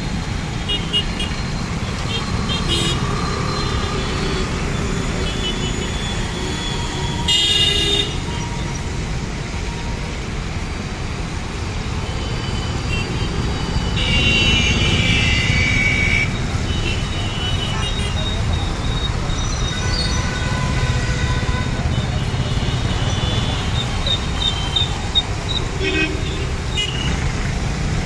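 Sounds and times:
scooters and cars passing on wet road: 0.0s - 28.0s.

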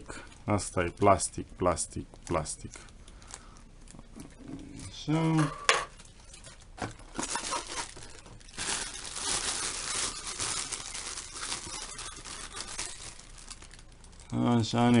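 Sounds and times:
plastic bag crinkling: 6.0s - 15.0s.

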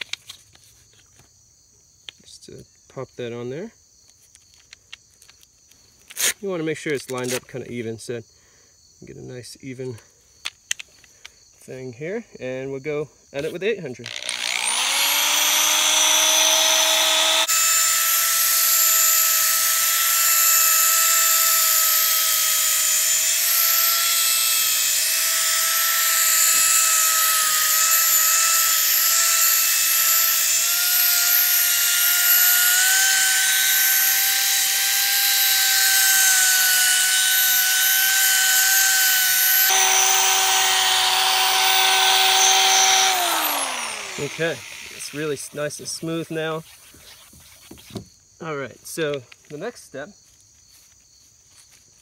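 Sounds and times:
electric drill motor whine: 13.4s - 45.6s.

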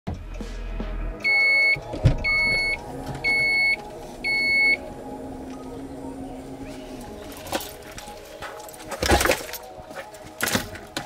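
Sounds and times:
car warning beeps: 1.2s - 6.6s.

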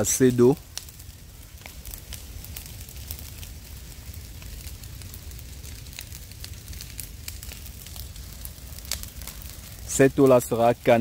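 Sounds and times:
brush fire crackling and popping: 0.0s - 11.0s
fire low rumble: 0.0s - 11.0s.

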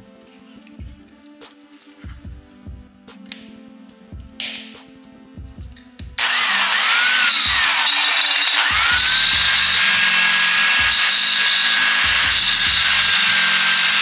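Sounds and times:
power grinder cutting metal: 6.2s - 14.0s.

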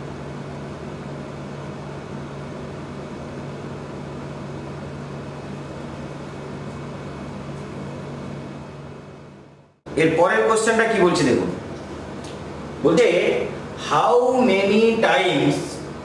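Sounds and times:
low hum with faint hiss: 0.0s - 16.0s.

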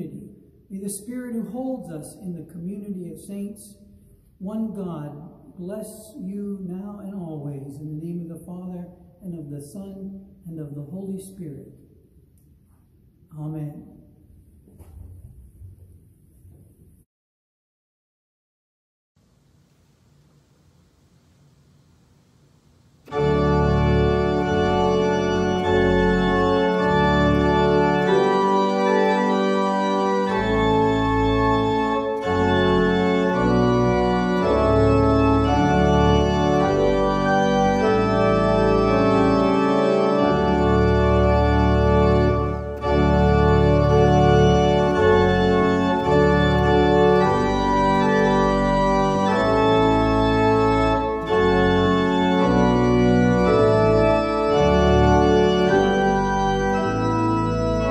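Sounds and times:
organ playing chords: 23.0s - 57.9s.

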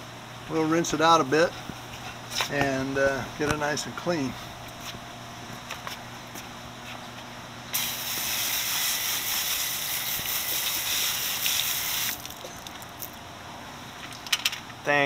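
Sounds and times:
hose nozzle spraying water: 7.8s - 12.4s.

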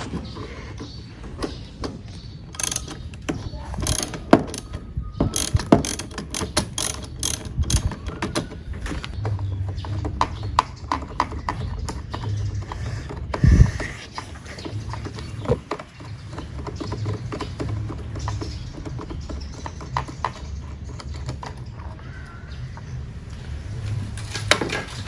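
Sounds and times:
ratchet wrench clicking: 2.5s - 4.7s, 5.3s - 8.2s.

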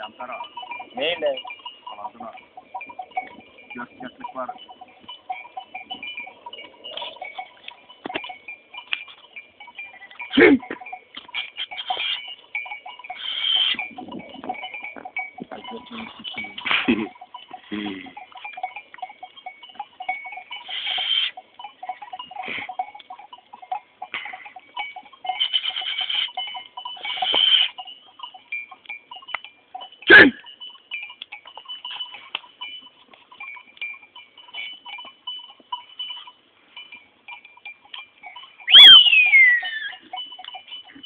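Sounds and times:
small bells jingling: 0.0s - 41.0s
whistle falling in pitch: 38.7s - 39.8s.

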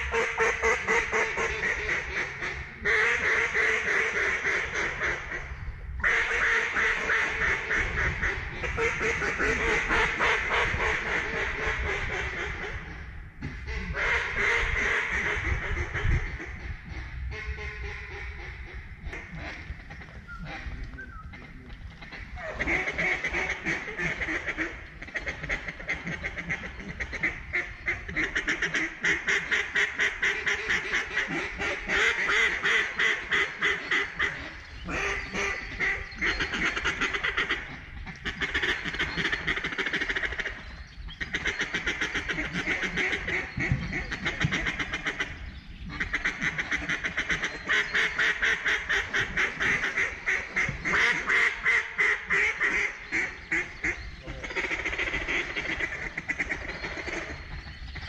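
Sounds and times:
duck calls rapid quacking: 13.7s - 40.6s, 41.2s - 57.4s.

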